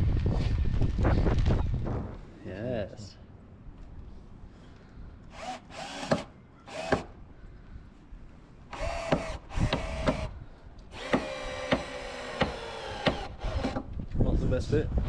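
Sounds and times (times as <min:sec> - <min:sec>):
cordless drill running: 0:05.3 - 0:07.1, 0:08.7 - 0:10.3, 0:10.9 - 0:13.8
sharp drill clicks: 0:05.3 - 0:07.1, 0:08.7 - 0:10.3, 0:10.9 - 0:13.9.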